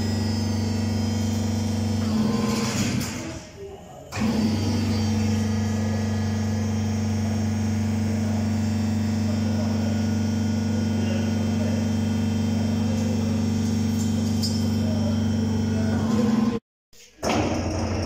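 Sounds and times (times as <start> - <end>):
mixer drive humming: 4.1 - 16.6.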